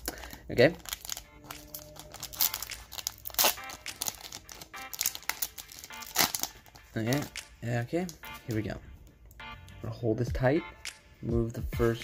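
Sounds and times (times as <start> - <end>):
foil pack crackling and ripping: 0.0 - 7.3.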